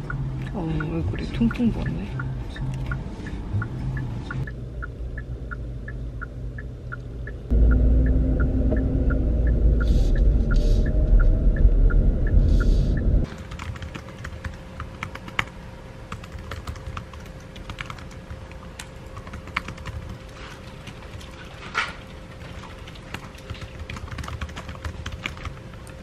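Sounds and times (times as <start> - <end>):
road rumble inside car: 0.0 - 13.3
steady light ticking: 0.0 - 13.3
computer keyboard typing: 13.3 - 15.5, 16.1 - 18.3, 19.1 - 20.3, 23.1 - 26.0.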